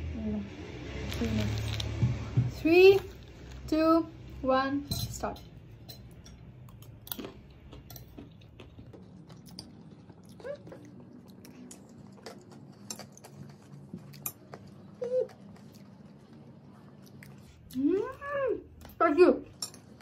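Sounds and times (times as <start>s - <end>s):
crunchy snack being chewed: 1.0s - 2.0s, 6.7s - 17.8s.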